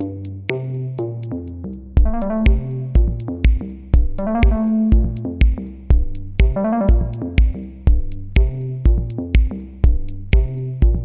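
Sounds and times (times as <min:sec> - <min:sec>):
drum machine beat: 0:00.0 - 0:01.3, 0:02.0 - 0:11.0
synthesizer melody: 0:02.0 - 0:03.4, 0:04.0 - 0:05.5, 0:06.4 - 0:07.6.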